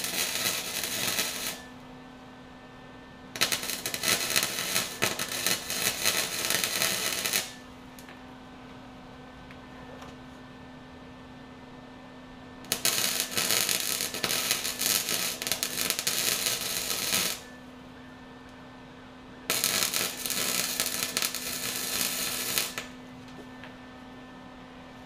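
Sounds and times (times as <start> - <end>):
welder crackling: 0.0 - 1.8, 3.4 - 8.1, 12.6 - 17.6, 19.5 - 23.0
steady low hum: 0.0 - 25.0.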